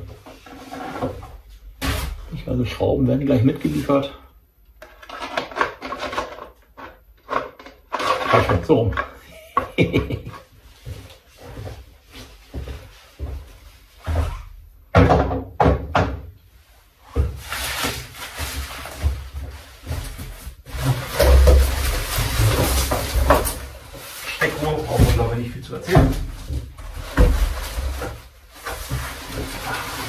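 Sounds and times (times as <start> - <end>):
cardboard sheets rustling and scraping: 0.0 - 2.4, 16.6 - 30.0
knocks and thuds on cardboard: 14.1 - 16.3.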